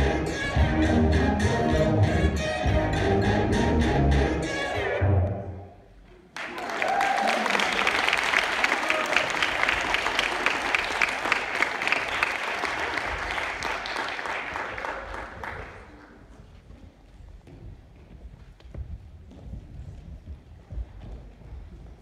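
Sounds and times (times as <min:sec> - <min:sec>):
music: 0:00.0 - 0:05.6
audience applause: 0:06.3 - 0:16.1.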